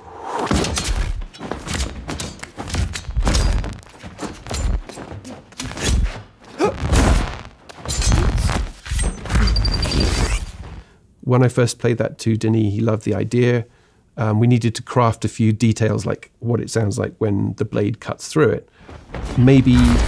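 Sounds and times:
heavy thuds of blows: 0:00.5 - 0:09.6
fast high alarm beeping: 0:09.4 - 0:10.2.

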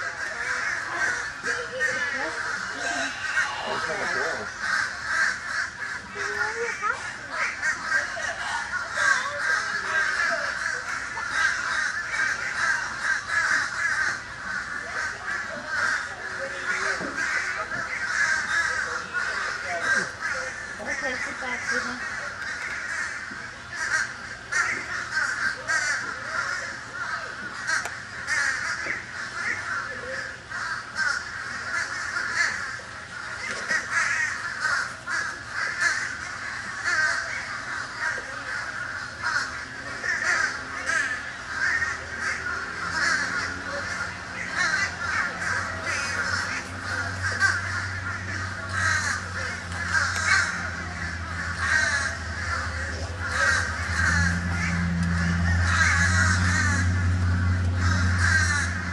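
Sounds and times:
crows cawing: 0:00.0 - 0:58.9
low steady hum: 0:00.0 - 0:58.9.

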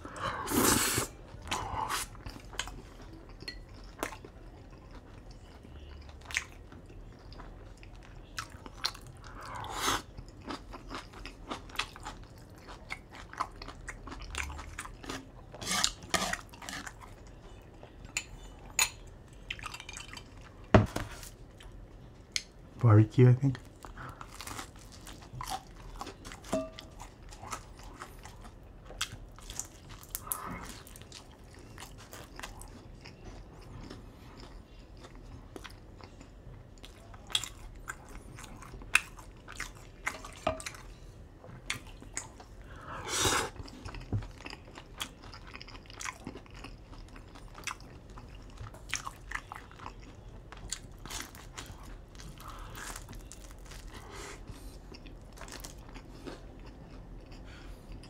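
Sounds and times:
chewing noises: 0:01.3 - 0:20.7, 0:23.5 - 0:58.0
pizza crust crunching: 0:44.0 - 0:56.8.

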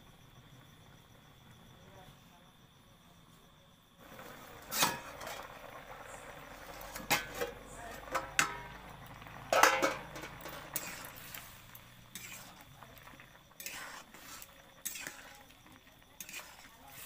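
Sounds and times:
metal spatula scraping a wok: 0:04.3 - 0:05.6, 0:06.6 - 0:08.8, 0:09.4 - 0:17.0.

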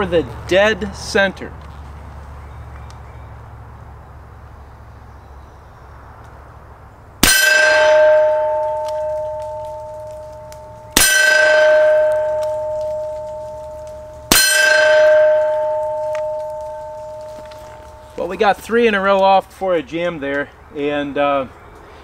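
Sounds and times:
steel plate ringing: 0:07.2 - 0:18.8.

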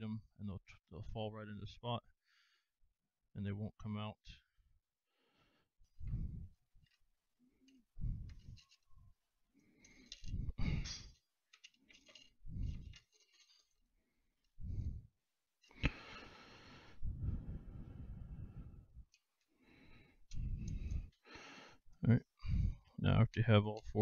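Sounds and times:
metal nuts scraping and clicking: 0:08.3 - 0:09.0, 0:09.8 - 0:13.8.

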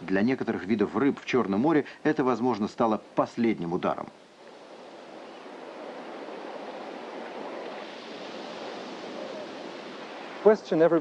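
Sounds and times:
sea water rushing: 0:04.2 - 0:11.0.

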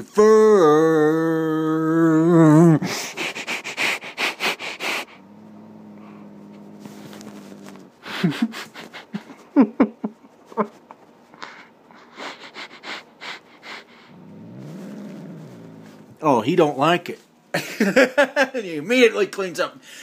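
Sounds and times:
low steady hum: 0:00.0 - 0:18.6
person sniffing loudly: 0:02.8 - 0:05.4, 0:06.0 - 0:09.3, 0:11.3 - 0:16.1.

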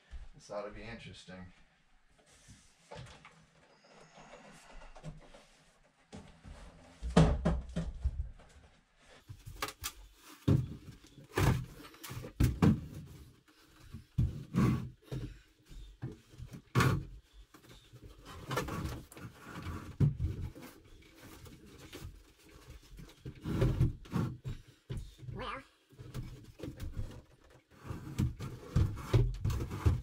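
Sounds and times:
wooden knocks and thumps: 0:06.1 - 0:08.6, 0:10.3 - 0:25.3, 0:26.0 - 0:30.0
wood scraping: 0:10.0 - 0:24.7, 0:26.1 - 0:30.0.

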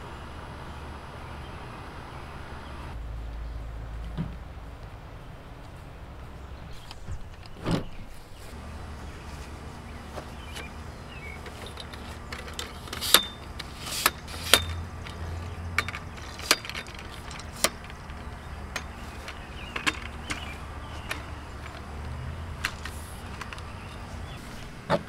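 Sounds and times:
steady low hum: 0:08.0 - 0:25.0
tripod clicks and knocks: 0:11.4 - 0:25.0.

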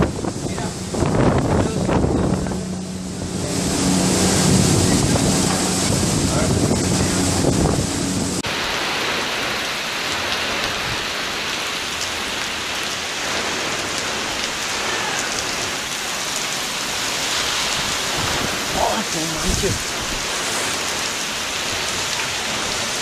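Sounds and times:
wind buffeting the microphone: 0:00.0 - 0:08.5, 0:17.3 - 0:20.9
heavy wind-driven rain: 0:00.0 - 0:23.0.

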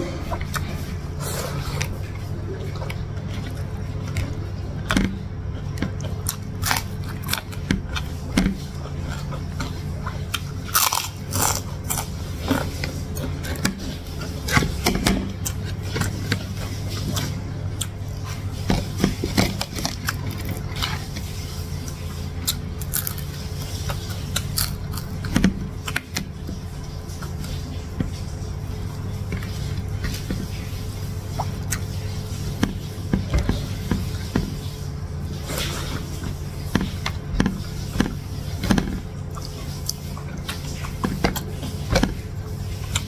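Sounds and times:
steady low hum: 0:00.0 - 0:43.0
chewing and mouth clicks: 0:00.2 - 0:28.2, 0:35.4 - 0:43.0
crunchy bites: 0:02.9 - 0:16.4, 0:22.4 - 0:26.2.

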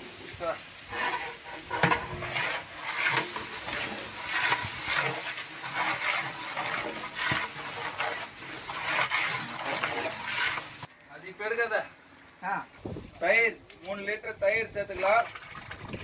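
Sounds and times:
ladle stirring in metal pot: 0:00.8 - 0:10.9.

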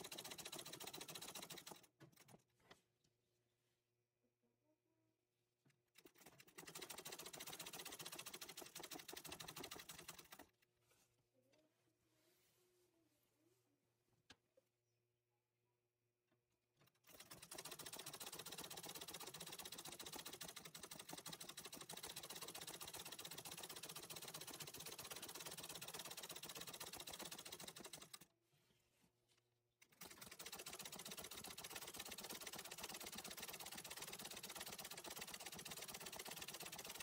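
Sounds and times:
sewing machine stitching: 0:00.0 - 0:02.8, 0:05.6 - 0:10.6, 0:16.8 - 0:28.3, 0:29.8 - 0:37.0.

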